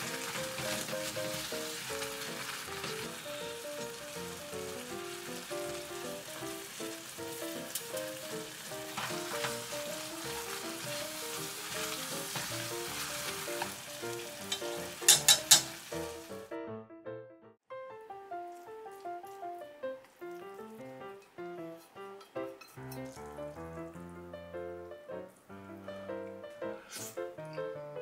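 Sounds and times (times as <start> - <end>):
chopsticks stirring food: 0.0 - 16.2
noodles sizzling in a frying pan: 0.0 - 16.5.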